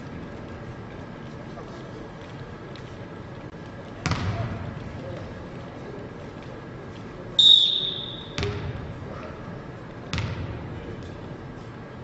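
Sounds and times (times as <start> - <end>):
volleyball thuds: 4.0 - 4.6, 10.1 - 10.6
referee's whistle: 7.4 - 8.4.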